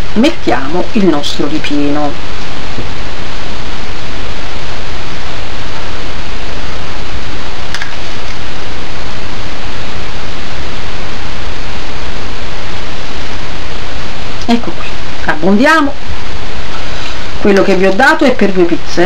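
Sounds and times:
loud steady hiss: 0.0s - 19.0s.

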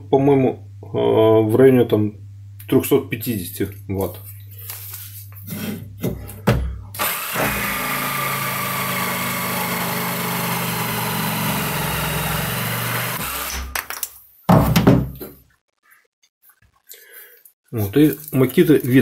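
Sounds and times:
electric jigsaw sawing wood: 7.0s - 13.7s.

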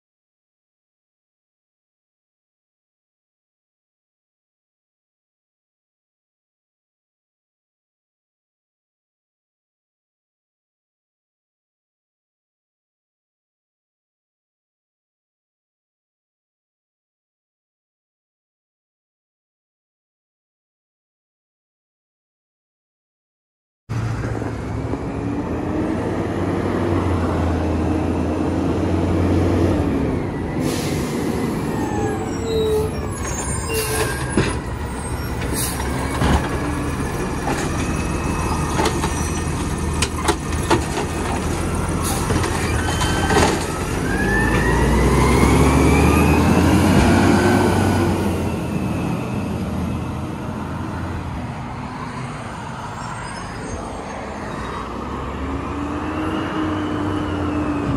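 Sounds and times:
diesel truck engine revving: 23.9s - 51.3s.

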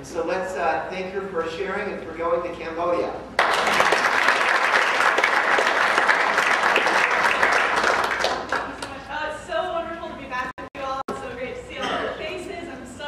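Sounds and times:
congregation applauding: 3.4s - 9.0s.

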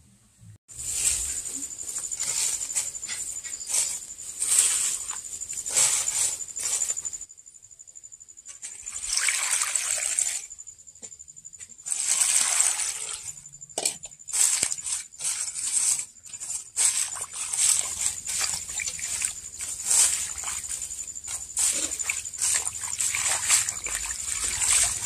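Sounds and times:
water sloshing and splashing: 8.6s - 10.5s, 11.9s - 13.4s, 14.3s - 25.0s.

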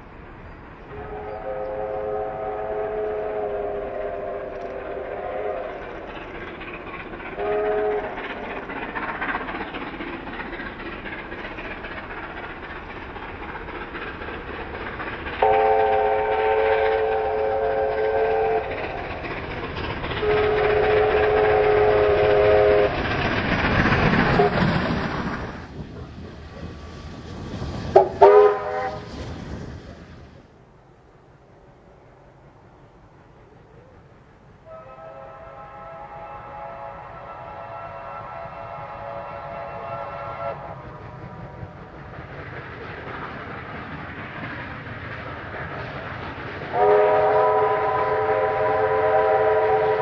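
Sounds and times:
steam locomotives working: 0.0s - 50.0s
steam locomotive whistle: 0.9s - 6.0s, 7.3s - 8.4s, 15.4s - 19.2s, 20.1s - 23.0s, 24.3s - 24.7s, 27.9s - 29.1s, 34.6s - 41.9s, 46.7s - 50.0s.

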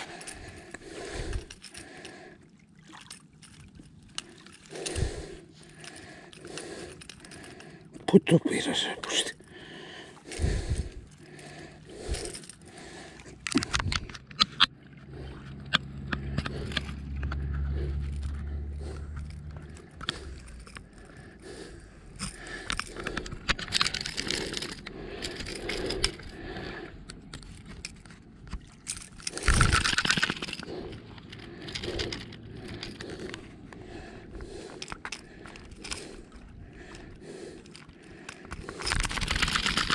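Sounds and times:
low rumble: 14.8s - 22.6s.

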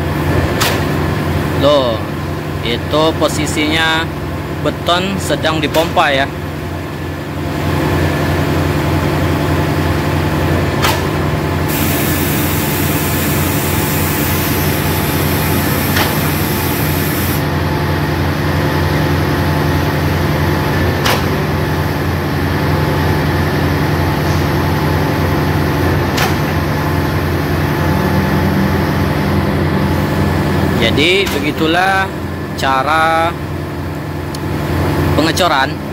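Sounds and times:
engine running steadily: 0.0s - 35.9s
sharp knock of concrete pump: 21.0s - 21.4s.

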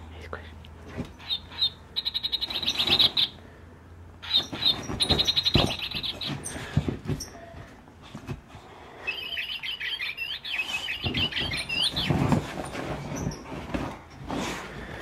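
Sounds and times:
toy bird chirping: 1.2s - 3.4s, 4.2s - 6.4s, 9.1s - 12.2s
dog pouncing on couch: 4.3s - 8.5s, 11.0s - 14.7s.

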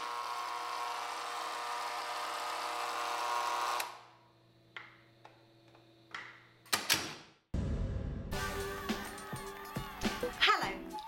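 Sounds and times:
electric gate motor whining: 0.0s - 4.2s.

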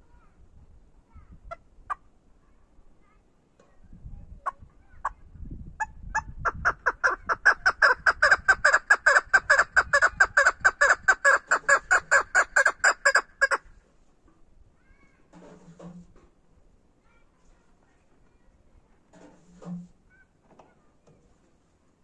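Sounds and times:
partridge calling: 5.8s - 13.6s.

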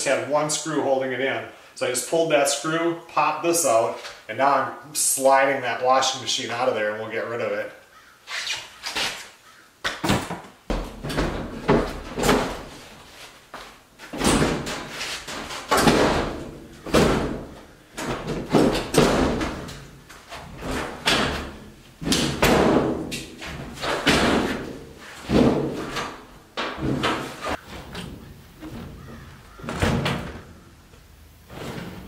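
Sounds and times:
washing machine thudding and scraping: 10.7s - 13.1s, 14.0s - 30.6s, 31.5s - 32.0s.

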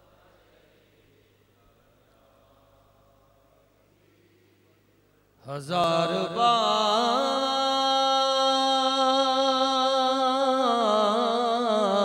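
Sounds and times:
man singing into a microphone: 5.4s - 12.0s.

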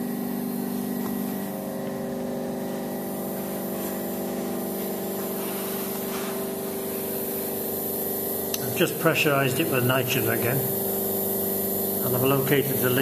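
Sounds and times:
machine hum with held tones: 0.0s - 13.0s
hiss: 3.0s - 13.0s.

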